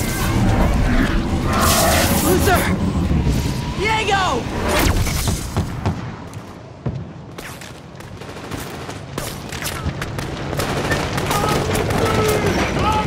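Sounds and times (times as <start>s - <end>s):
scattered gunshots: 7.4s - 13.0s.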